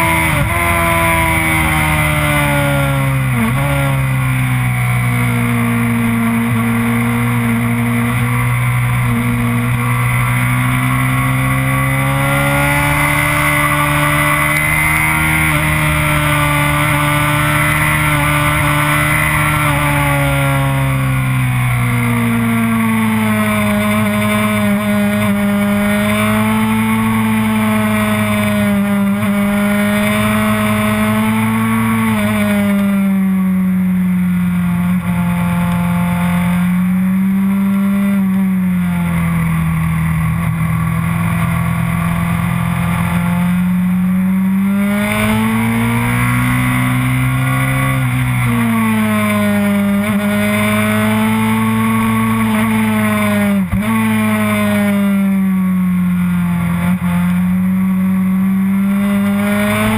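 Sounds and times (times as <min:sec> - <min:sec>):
motorcycle engine running hard: 0:00.0 - 0:59.9
wind and road noise: 0:00.0 - 0:59.9.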